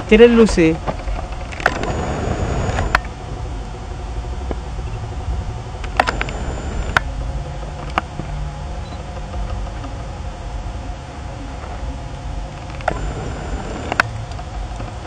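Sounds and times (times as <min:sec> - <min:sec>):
low outdoor rumble: 0:00.0 - 0:15.0
sharp clicks: 0:01.5 - 0:03.1, 0:05.8 - 0:07.1, 0:12.7 - 0:14.9.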